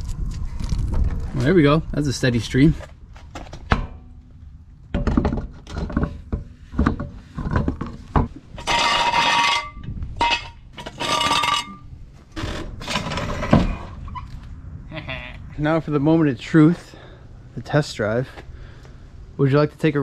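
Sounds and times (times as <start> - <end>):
metal clinks of wheel and lug nuts: 4.9 - 14.3.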